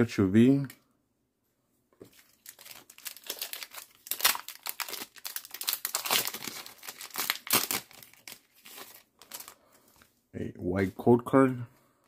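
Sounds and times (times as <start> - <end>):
foil wrapper crinkling and tearing: 2.1 - 9.6.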